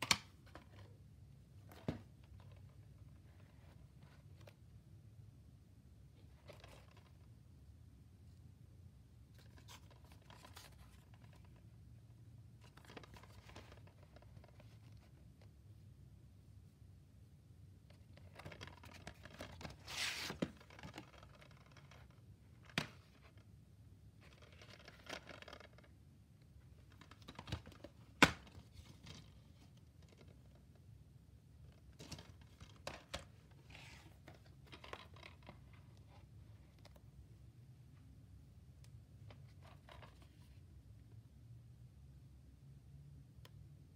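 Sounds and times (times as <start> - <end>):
low steady hum: 0.0 - 43.9
soft rustling: 17.8 - 23.5.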